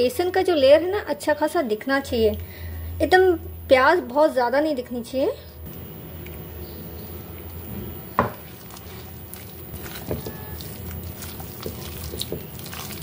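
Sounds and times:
low steady hum: 0.0s - 13.0s
hands squishing wet batter: 5.7s - 13.0s.

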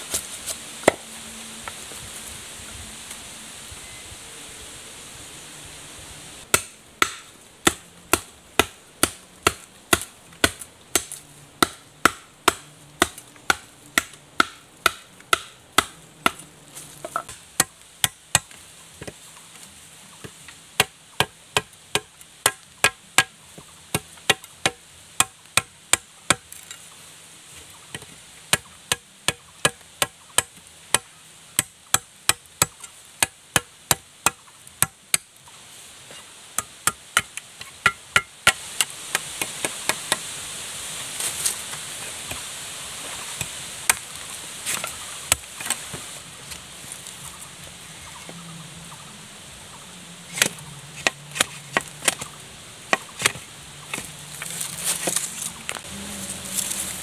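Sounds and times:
knife chopping bamboo: 6.5s - 19.2s, 20.2s - 26.5s, 27.9s - 35.3s, 50.3s - 52.3s, 52.9s - 55.3s.

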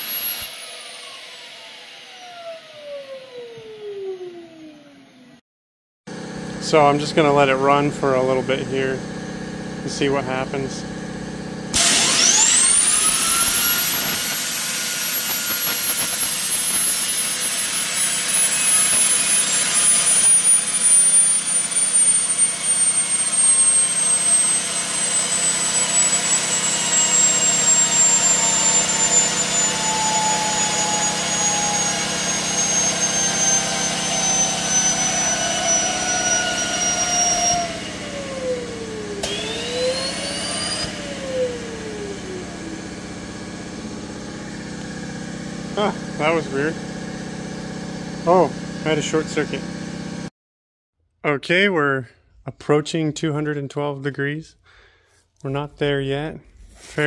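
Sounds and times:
turbine whining: 0.0s - 5.4s, 6.1s - 50.3s.

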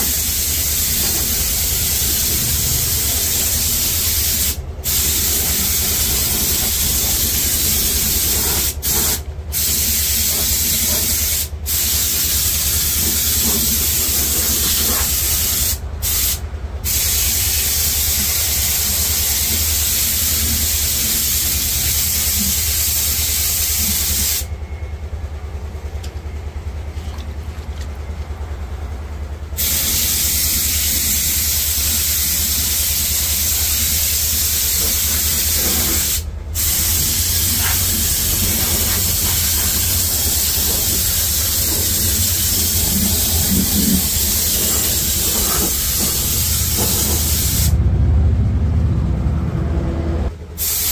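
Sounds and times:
spray gun hissing: 0.0s - 24.5s, 29.6s - 47.8s, 50.6s - 50.9s
steady low hum: 23.8s - 50.6s.

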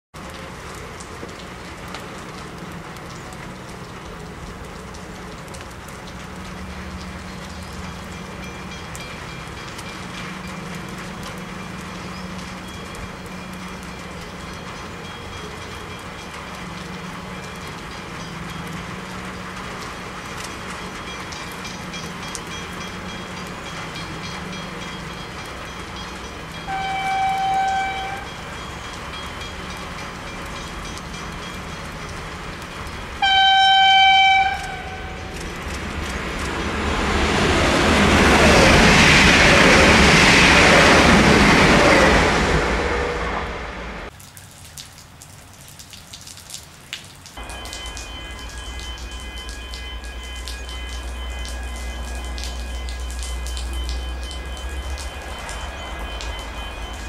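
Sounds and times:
diesel train droning: 0.2s - 44.1s, 47.4s - 57.0s
train horn blast: 26.6s - 28.4s, 33.2s - 35.4s.

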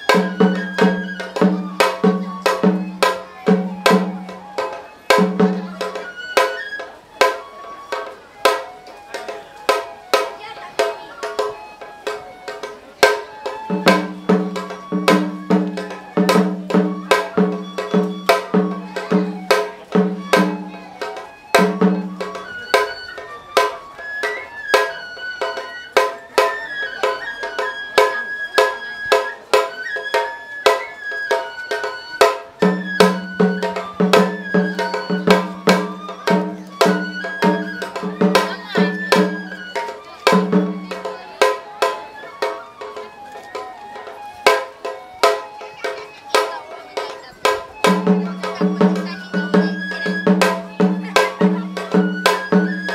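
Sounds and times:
deep drum beats: 0.0s - 6.5s, 13.0s - 23.0s, 32.2s - 41.1s, 47.4s - 52.9s
quick drum strokes: 0.0s - 43.1s
bamboo flute melody: 0.0s - 52.9s.

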